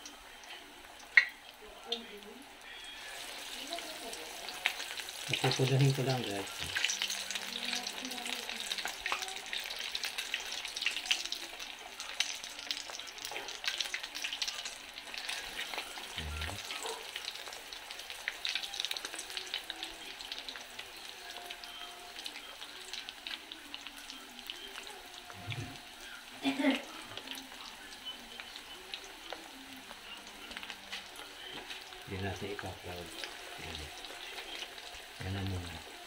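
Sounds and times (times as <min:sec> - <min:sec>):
chicken deep-frying in oil: 0:00.0 - 0:36.0
metal tongs turning food: 0:03.0 - 0:25.9.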